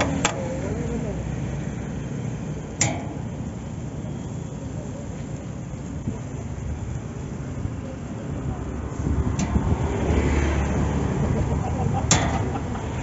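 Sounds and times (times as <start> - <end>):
low street rumble: 0.0 - 13.0
metal tongs clacking on grill: 2.8 - 3.4, 12.0 - 12.8.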